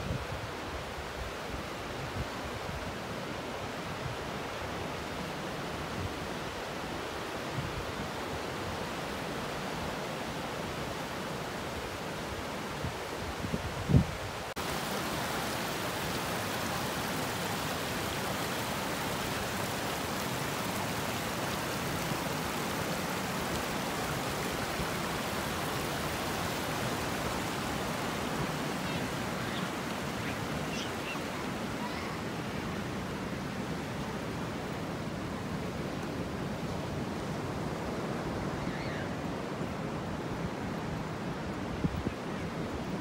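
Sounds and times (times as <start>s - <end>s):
creek water rushing over rocks: 0.0s - 43.0s
ocean surf: 0.0s - 43.0s.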